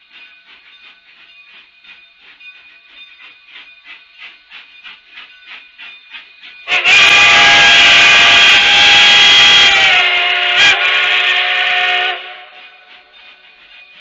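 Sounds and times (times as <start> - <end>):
steam whistle blast: 6.7 - 12.6.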